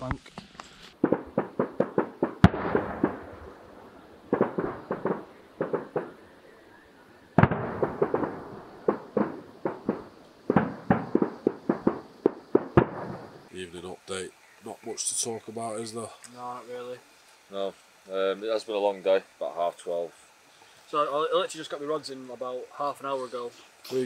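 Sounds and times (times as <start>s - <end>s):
rapid crackling pops: 0.0s - 24.0s
firework bang: 1.0s - 6.2s, 7.4s - 13.5s.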